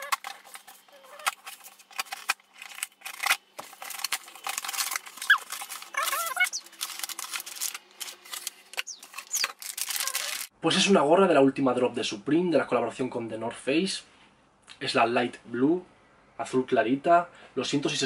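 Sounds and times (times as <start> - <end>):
packing tape tearing: 0.0 - 10.5
short squeaks: 5.2 - 6.7.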